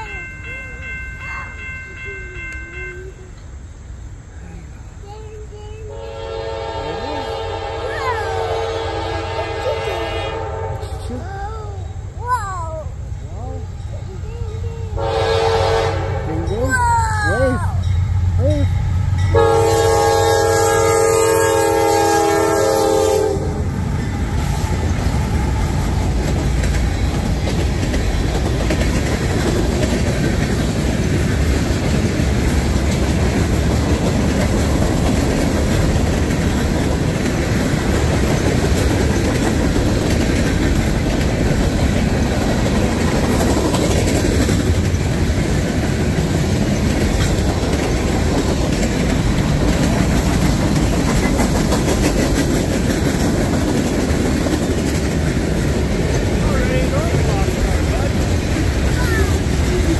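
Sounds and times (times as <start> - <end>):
train wheels on rails: 0.0 - 59.9
train air horn: 5.9 - 11.1, 15.0 - 16.4, 19.3 - 23.7.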